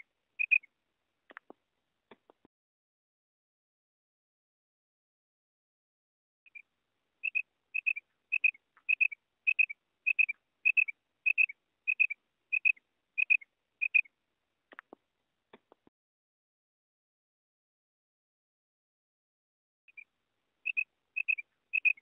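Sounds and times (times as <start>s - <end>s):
quail calling: 0.0s - 0.7s, 7.2s - 14.1s, 19.9s - 22.0s
faint clicks: 1.3s - 2.5s.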